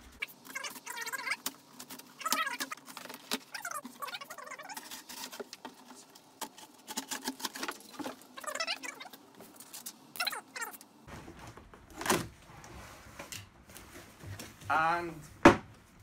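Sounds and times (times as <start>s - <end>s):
cardboard squeaks: 0.2s - 5.5s, 6.5s - 9.2s
cardboard scraping and crackling: 0.2s - 14.6s.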